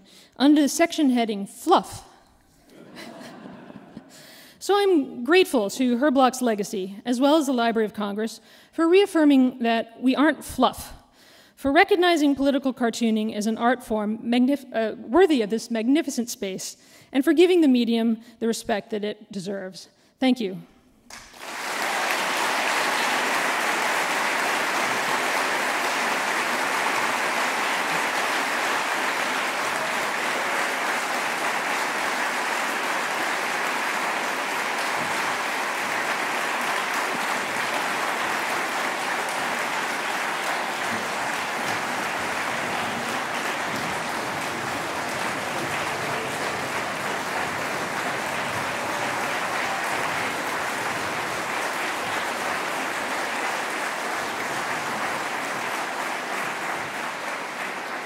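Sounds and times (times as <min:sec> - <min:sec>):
audience applauding: 0:21.1 - 0:58.0.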